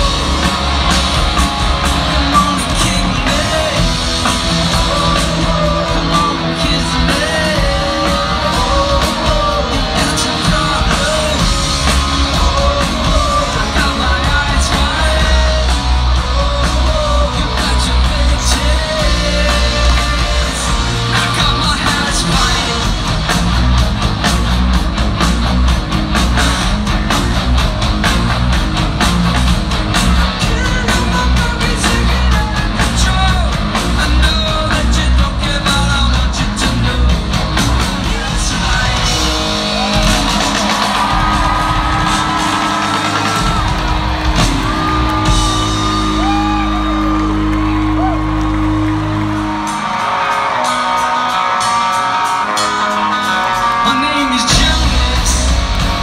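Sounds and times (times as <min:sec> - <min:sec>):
bass guitar: 0:00.0 - 0:56.0
electric guitars: 0:00.0 - 0:56.0
steady drum beat: 0:00.0 - 0:56.0
person singing: 0:01.7 - 0:23.1, 0:50.5 - 0:56.0.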